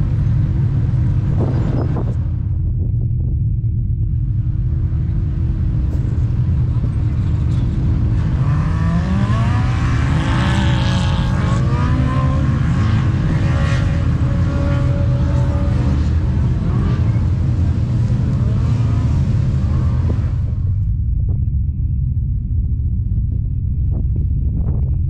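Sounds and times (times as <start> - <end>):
off-road vehicle engines revving: 0.0 - 2.5, 4.2 - 20.8
heavy low rumble: 0.0 - 25.0.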